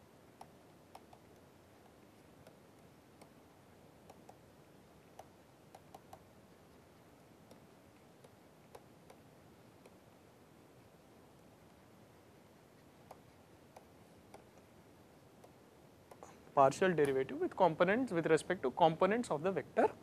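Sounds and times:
stylus tapping on tablet screen: 0.3s - 4.5s, 5.1s - 10.0s, 12.7s - 14.8s, 15.4s - 16.4s.

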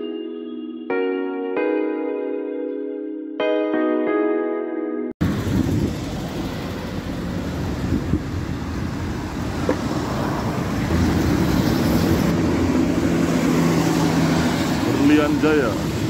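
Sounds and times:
wind on microphone: 5.2s - 14.9s
heavy engine hum: 5.2s - 16.0s
passing vehicles: 5.2s - 16.0s.

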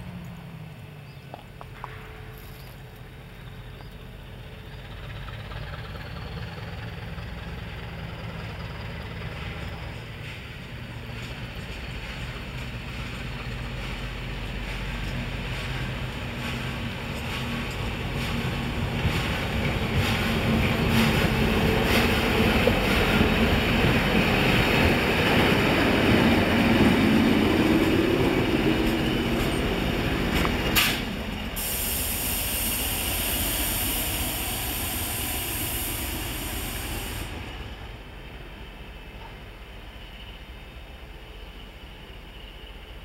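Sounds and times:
diesel locomotives passing: 0.0s - 43.0s
high hiss: 16.8s - 43.0s.

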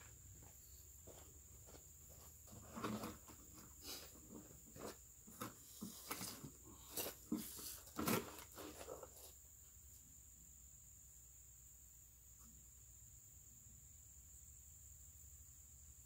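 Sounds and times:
clothing rustling: 1.1s - 9.4s.

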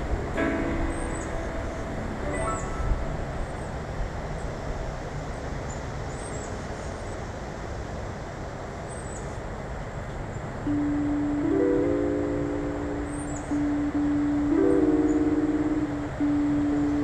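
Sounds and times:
steady background noise: 0.0s - 17.0s
music: 0.3s - 3.4s, 10.7s - 17.0s
small birds chirping: 0.6s - 3.8s, 12.9s - 17.0s.

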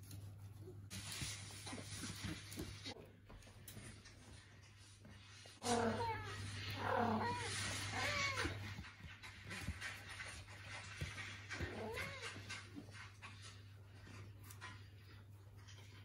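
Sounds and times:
cat meowing: 5.6s - 8.8s.

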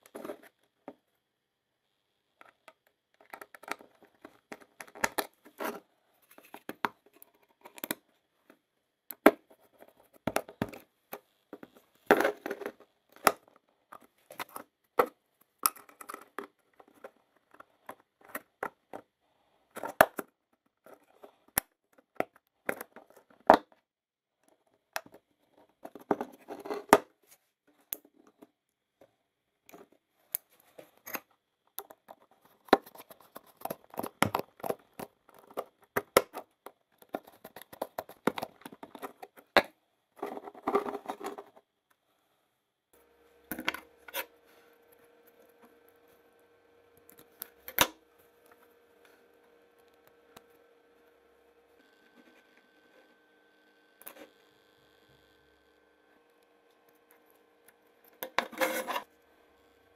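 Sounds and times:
rustling and scraping: 0.0s - 0.6s, 40.2s - 41.6s, 58.2s - 59.1s.

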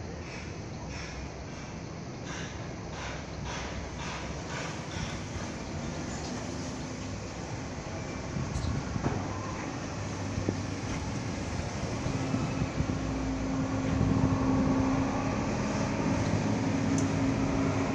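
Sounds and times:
engine humming and rumbling: 4.5s - 17.9s
faint clicks: 16.2s - 17.2s.

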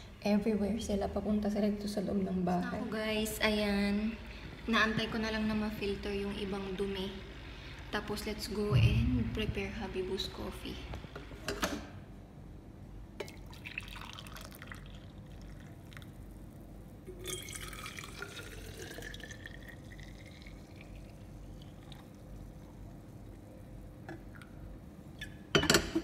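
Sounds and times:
coffee pouring into a mug: 13.2s - 16.3s, 17.2s - 23.4s
coffee pouring into a steel flask: 13.4s - 16.2s, 17.2s - 22.6s.

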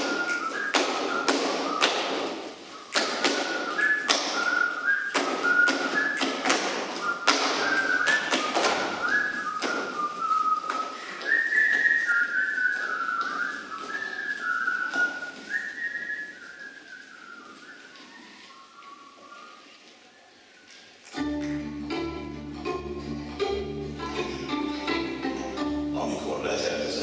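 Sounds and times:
boots stamping on stage floor: 0.0s - 16.2s
high whistling tune: 0.0s - 20.8s.

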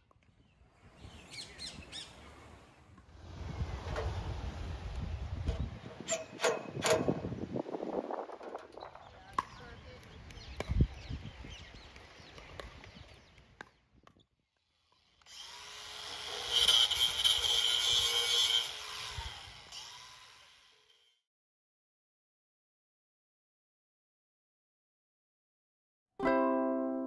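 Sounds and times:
cordless drill whining: 15.2s - 20.9s.

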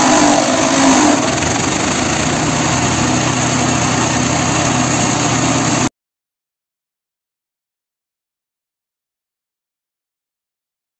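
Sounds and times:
shredder petrol engine running: 0.0s - 5.9s.

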